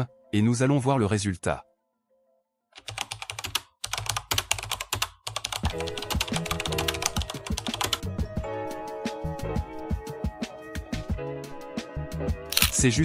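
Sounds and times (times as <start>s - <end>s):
background music: 0.0s - 13.0s
fast typing on keyboard: 2.8s - 8.0s.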